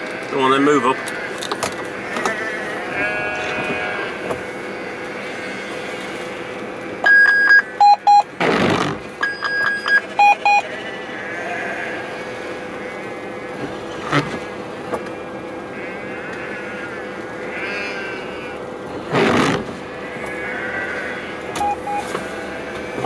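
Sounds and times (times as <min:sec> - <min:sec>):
electronic beeps in vehicle cab: 0:07.0 - 0:08.3, 0:09.2 - 0:10.7, 0:21.6 - 0:22.2.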